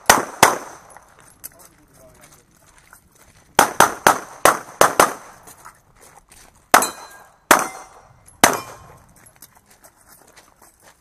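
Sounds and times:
pistol shots: 0:00.0 - 0:01.0, 0:03.6 - 0:05.4, 0:06.7 - 0:09.0.

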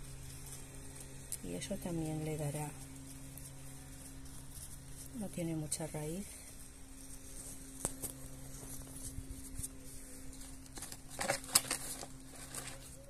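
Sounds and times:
faint steady hum: 0:00.0 - 0:13.0
soil rustling out of plastic pot: 0:03.3 - 0:13.0.

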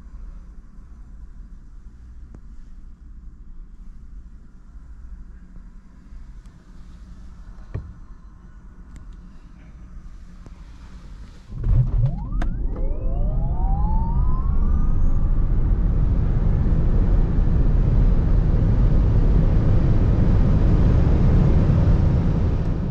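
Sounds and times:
electric motor whine climbing: 0:11.5 - 0:16.8
loud rumble: 0:11.5 - 0:22.9
tyre road and wind noise: 0:14.2 - 0:22.9.

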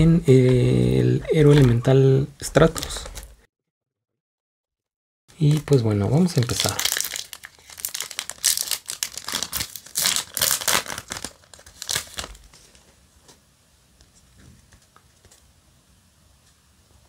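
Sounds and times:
foil wrapper crinkling and tearing: 0:05.4 - 0:12.8.

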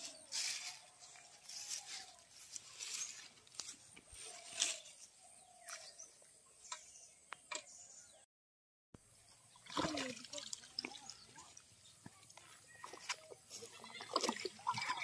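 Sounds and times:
footsteps swishing through grass: 0:00.0 - 0:06.1.

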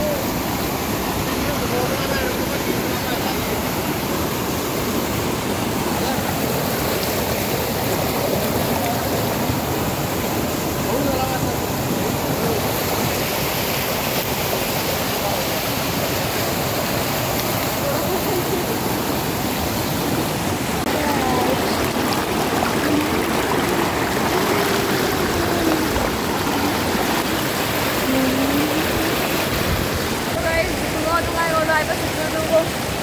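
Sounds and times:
river rushing over rocks: 0:00.0 - 0:33.0.

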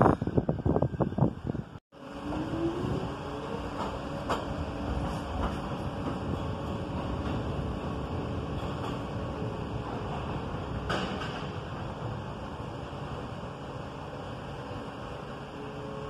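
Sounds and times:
wind buffeting microphone: 0:00.0 - 0:12.5
subway train rumble and motor whine: 0:00.0 - 0:16.0.

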